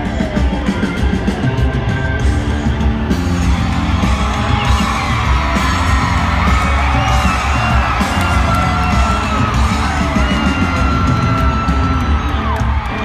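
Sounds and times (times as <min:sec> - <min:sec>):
audience whooping and yelling: 0:00.0 - 0:13.0
live band playing country-rock: 0:00.0 - 0:13.0.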